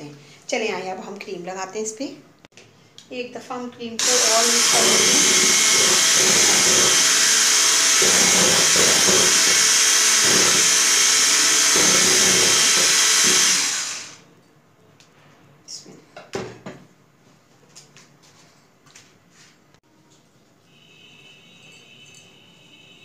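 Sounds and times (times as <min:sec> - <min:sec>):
electric hand mixer whipping cream: 0:04.0 - 0:14.2.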